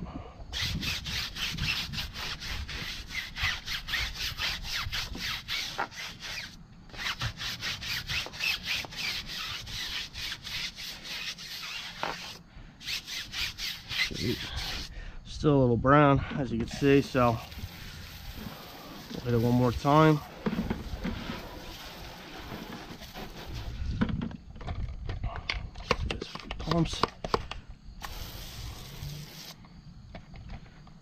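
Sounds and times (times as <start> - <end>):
brush scrubbing tire: 0.6 - 14.9, 16.6 - 24.0, 28.0 - 29.6.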